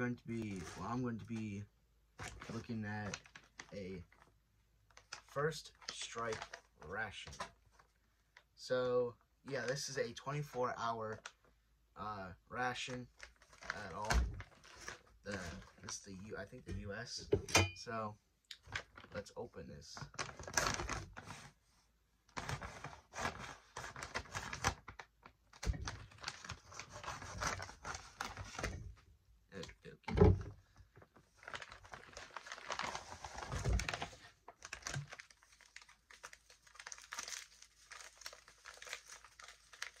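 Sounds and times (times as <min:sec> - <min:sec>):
plastic packaging tearing and crinkling: 0:04.9 - 0:07.9, 0:12.7 - 0:16.1, 0:20.0 - 0:21.4, 0:22.3 - 0:28.8, 0:31.3 - 0:40.0.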